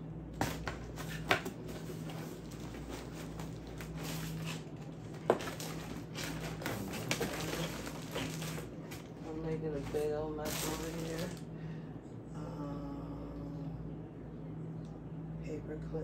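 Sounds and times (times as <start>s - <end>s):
steady low hum: 0.0s - 16.0s
cardboard and plastic packaging rustling: 0.4s - 11.5s.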